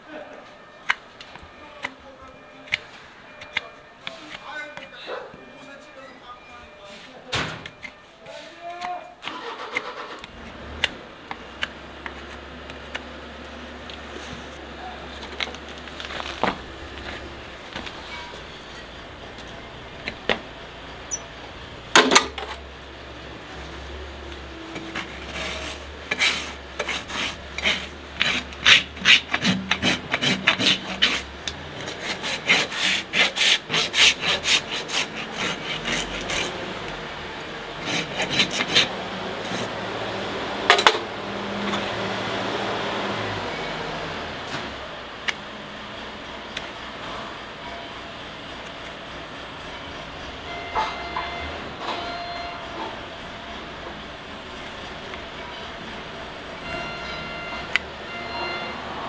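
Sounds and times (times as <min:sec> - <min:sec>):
rasp filing a hoof: 0:24.8 - 0:36.8, 0:37.8 - 0:39.8.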